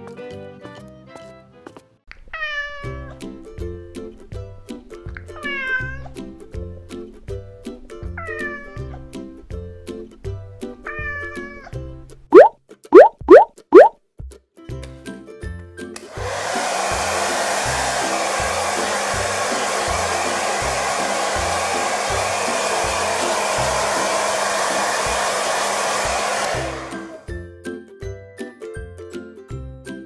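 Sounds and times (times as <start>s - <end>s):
hair dryer blowing: 16.0s - 27.3s.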